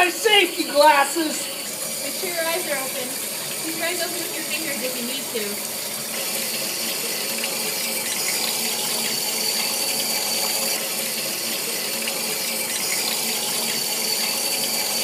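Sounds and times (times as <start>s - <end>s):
water spraying and splashing: 0.0s - 15.0s.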